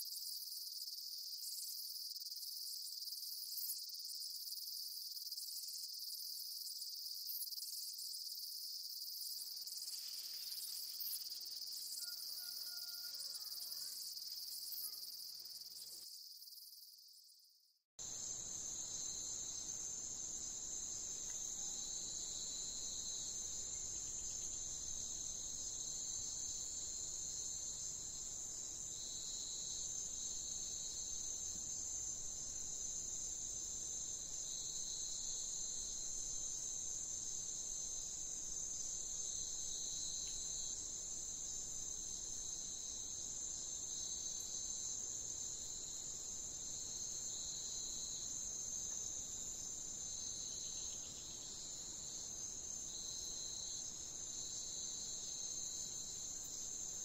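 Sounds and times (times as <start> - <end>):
lower insect trill: 0.0 - 57.0
insects high trill: 0.2 - 17.4.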